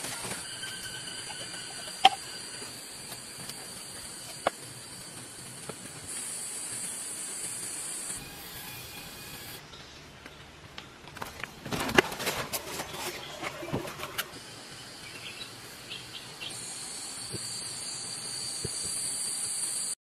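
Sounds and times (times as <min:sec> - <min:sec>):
high-pitched insect drone: 0:00.0 - 0:09.6, 0:16.5 - 0:20.0.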